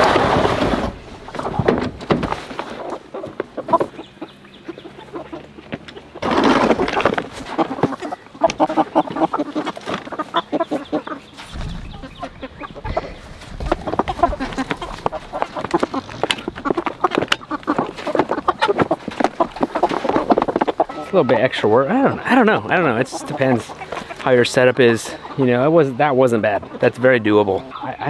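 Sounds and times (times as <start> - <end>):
chickens clucking: 0.0 - 28.0
low rumble: 11.4 - 16.7.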